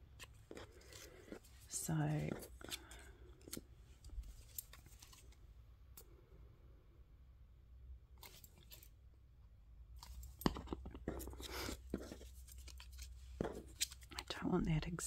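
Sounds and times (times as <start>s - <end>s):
paper rustling and crinkling: 0.2s - 5.4s, 10.0s - 14.3s.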